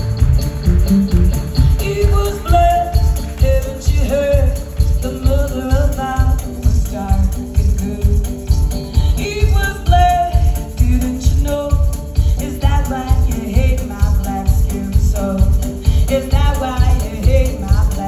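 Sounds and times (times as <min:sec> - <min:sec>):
steady low beat: 0:00.0 - 0:03.4
banjo: 0:00.0 - 0:18.0
woman singing: 0:01.6 - 0:18.0.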